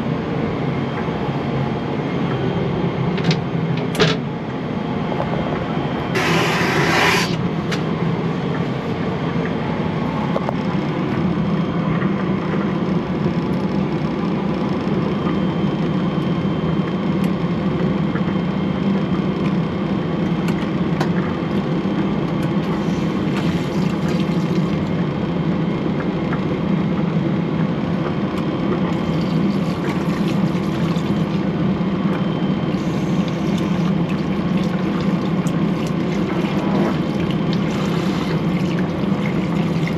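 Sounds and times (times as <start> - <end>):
airplane cabin drone: 0.0 - 39.9
tap running water in spurts: 22.6 - 24.9, 28.8 - 31.5, 32.7 - 39.9.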